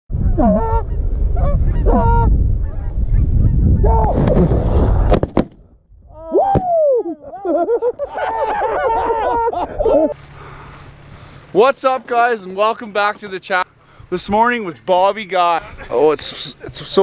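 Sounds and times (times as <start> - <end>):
wind rumble on microphone: 0.1 - 7.4
geese honking: 0.3 - 3.9
sharp cracks: 4.0 - 5.8.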